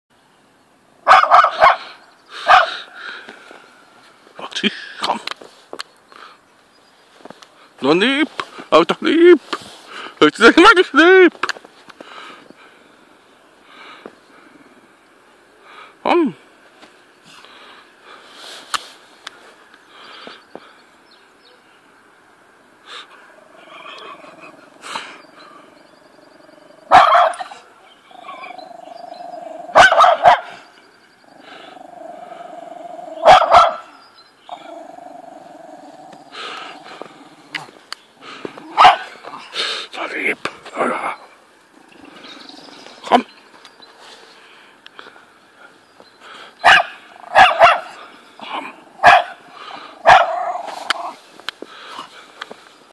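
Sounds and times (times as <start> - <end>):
small dog barking: 1.0 - 2.8, 26.8 - 27.6, 28.2 - 30.6, 32.9 - 34.0, 38.6 - 39.1, 46.6 - 48.0, 49.0 - 49.4, 50.0 - 51.2
dog growling: 22.9 - 30.2, 31.2 - 33.8, 34.5 - 37.8.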